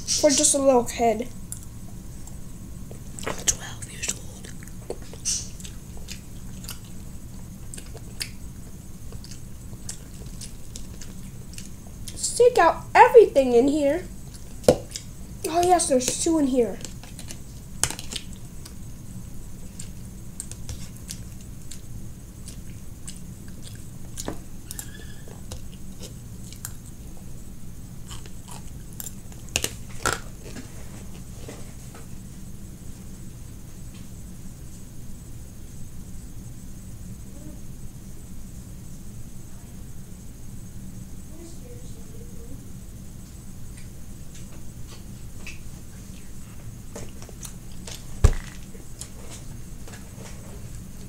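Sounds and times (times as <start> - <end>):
low steady hum: 0.0 - 51.0
chewing clicks and smacks: 3.2 - 7.0, 7.6 - 8.4, 9.1 - 12.2, 14.2 - 15.7, 16.8 - 18.8, 19.7 - 27.3, 28.0 - 30.3, 47.0 - 48.0.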